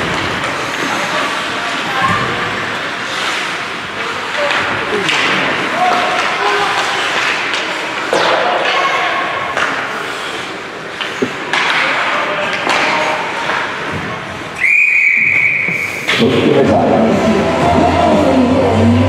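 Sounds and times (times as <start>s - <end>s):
voices calling out in hall: 0.0s - 10.1s, 11.2s - 19.0s
skates on ice: 0.0s - 14.6s
referee whistle blast: 14.6s - 16.1s.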